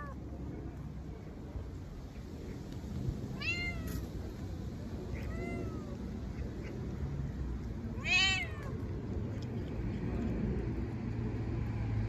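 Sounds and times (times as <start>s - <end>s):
cat meowing: 3.4s - 4.0s, 5.1s - 6.0s, 8.0s - 8.8s.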